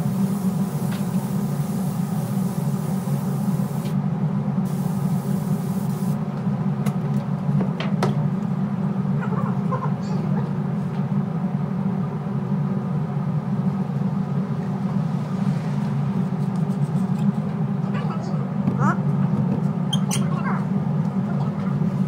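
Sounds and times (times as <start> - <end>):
spray gun hissing: 0.0 - 4.0, 4.7 - 6.2
low mechanical hum: 0.0 - 22.0.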